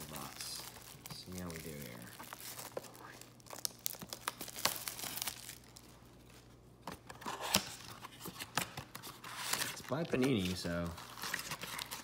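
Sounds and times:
plastic shrink wrap crinkling: 0.0s - 6.5s, 7.5s - 12.0s.

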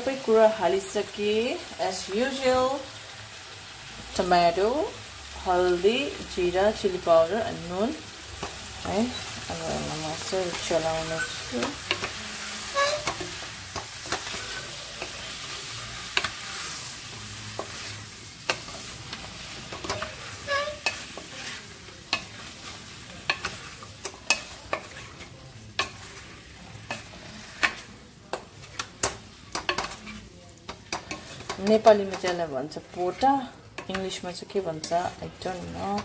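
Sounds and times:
food sizzling in a pan: 0.0s - 36.0s
spatula scraping a pan: 8.2s - 36.0s.

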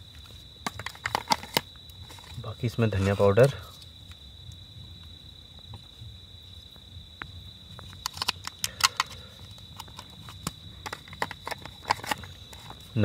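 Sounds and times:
crickets trilling: 0.0s - 13.0s
plastic container clicking and tapping: 0.6s - 1.6s, 9.8s - 12.7s.

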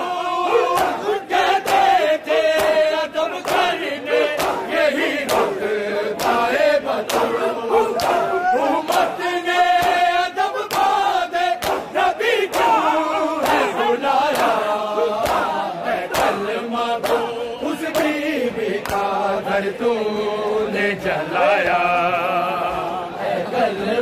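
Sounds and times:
men chanting in unison: 0.0s - 24.0s
hands slapping chests: 0.7s - 5.6s, 6.2s - 9.2s, 9.8s - 19.1s.

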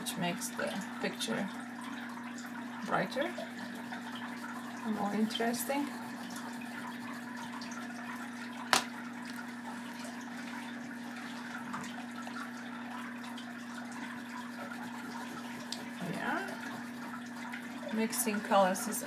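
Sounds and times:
oil pastel scratching on paper: 4.9s - 7.4s, 14.5s - 17.1s.

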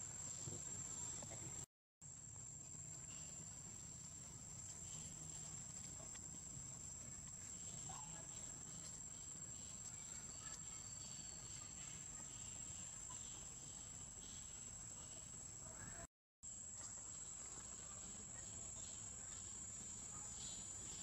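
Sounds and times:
high-pitched insect drone: 7.4s - 15.6s.

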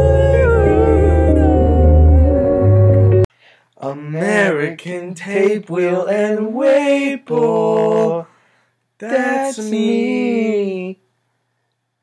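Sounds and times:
man singing unaccompanied: 3.8s - 8.3s, 9.0s - 11.0s.

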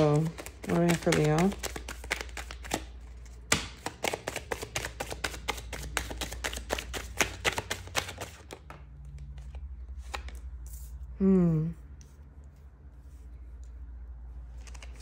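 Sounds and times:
cards being shuffled: 0.0s - 10.9s, 14.5s - 15.0s.

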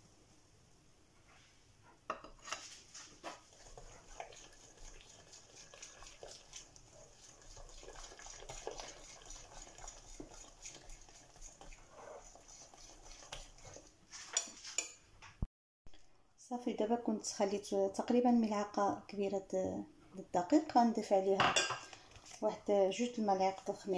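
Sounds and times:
whisk scraping glass bowl: 2.2s - 15.0s, 21.6s - 23.9s.

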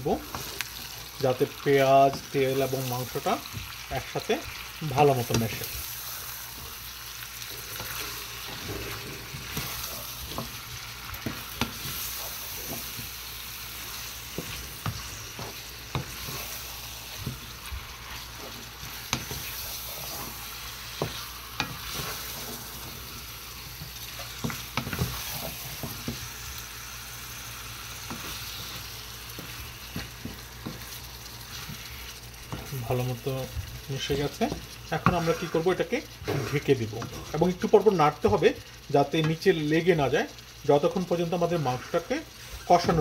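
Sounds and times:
meat sizzling in hot oil: 0.0s - 43.0s
wooden spatula scraping pan: 5.1s - 26.3s, 28.0s - 33.6s, 34.5s - 37.4s.

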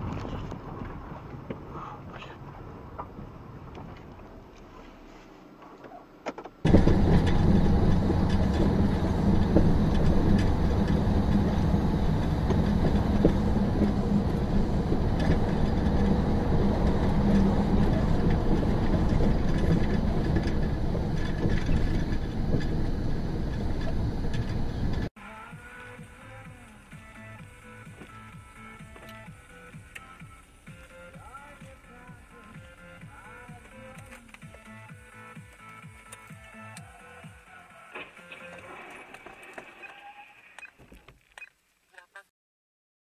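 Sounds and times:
vehicle engine and road rumble: 0.0s - 39.6s.

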